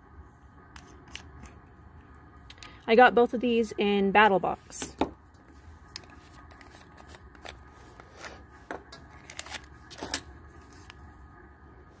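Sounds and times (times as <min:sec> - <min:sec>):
hands handling small objects: 0:05.9 - 0:11.0.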